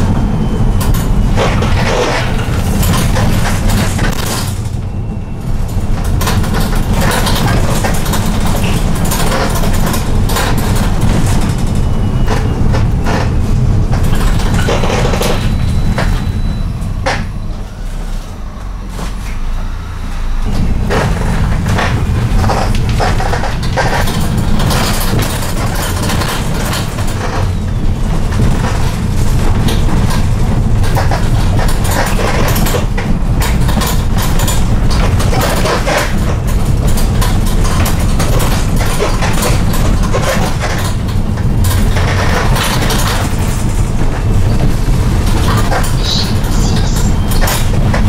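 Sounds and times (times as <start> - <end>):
engine and road rumble: 0.0 - 48.0
plastic panels creaking and rattling: 5.7 - 17.4, 20.7 - 48.0.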